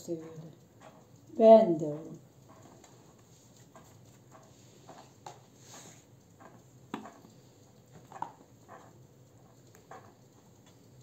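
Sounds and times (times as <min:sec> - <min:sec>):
hands tapping and clicking: 0:06.4 - 0:07.3.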